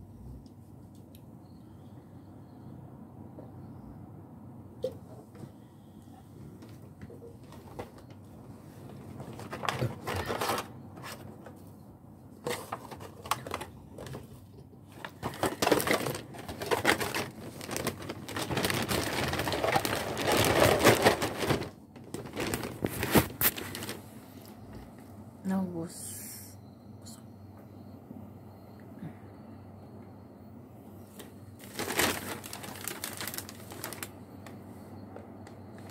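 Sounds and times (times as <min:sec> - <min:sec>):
plastic bags crinkling: 0:08.8 - 0:11.4, 0:12.4 - 0:24.2, 0:31.2 - 0:34.6.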